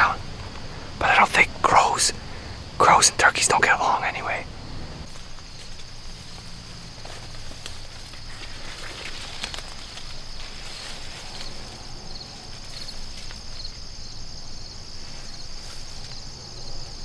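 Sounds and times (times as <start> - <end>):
insects chirring: 0.0 - 17.0
soft rustles: 5.1 - 13.8
footsteps on dry stubble: 5.1 - 13.9.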